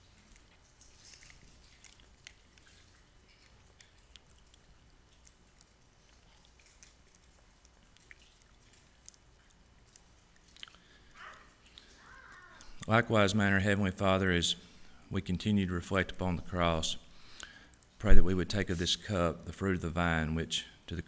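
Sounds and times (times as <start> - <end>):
faint clicks and crackles: 0.0 - 12.9.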